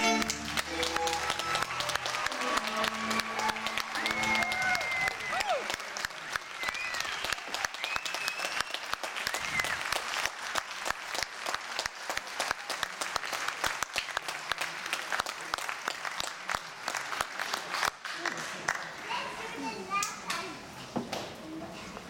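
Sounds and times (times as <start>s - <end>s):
audience applauding: 0.0s - 19.1s
whoops and cheers: 0.7s - 10.0s.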